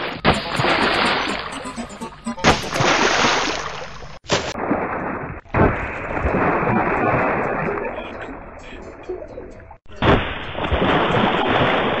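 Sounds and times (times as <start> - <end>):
splashing rushing water: 2.6 - 8.1, 10.0 - 12.0.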